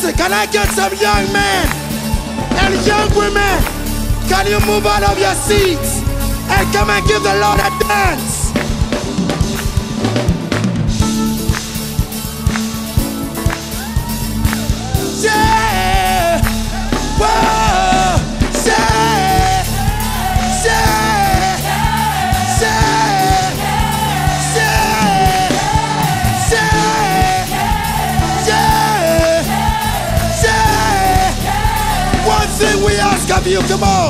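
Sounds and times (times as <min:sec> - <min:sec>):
band playing fast dance music: 0:00.0 - 0:34.0
person singing: 0:14.8 - 0:34.0.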